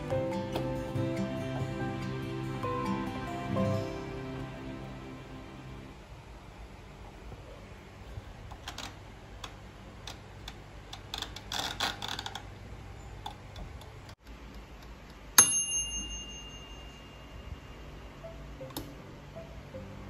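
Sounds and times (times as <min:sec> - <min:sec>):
timer bell ding: 0:15.4 - 0:18.4.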